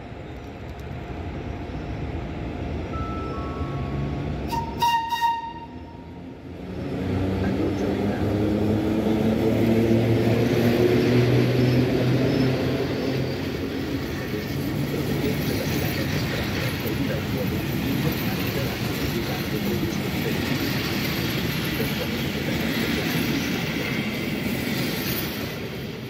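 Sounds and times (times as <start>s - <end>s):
electric train humming: 0.0s - 26.0s
high train toot: 2.9s - 6.3s.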